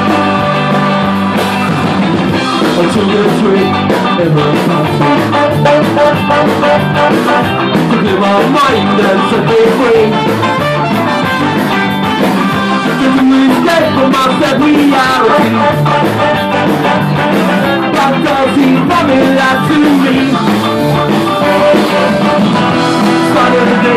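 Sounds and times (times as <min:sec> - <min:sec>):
ska band playing live: 0:00.0 - 0:23.9
person singing: 0:02.6 - 0:10.6, 0:12.6 - 0:23.9.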